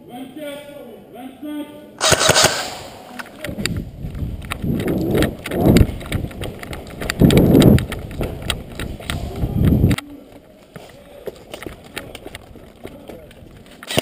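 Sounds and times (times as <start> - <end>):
wind rushes on microphone: 3.4 - 10.0
running footsteps on concrete: 3.6 - 13.9.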